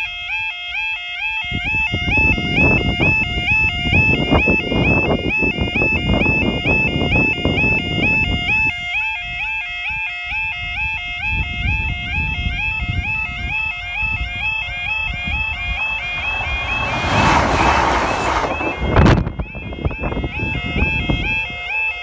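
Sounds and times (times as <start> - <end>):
diesel train passing: 15.4 - 19.5.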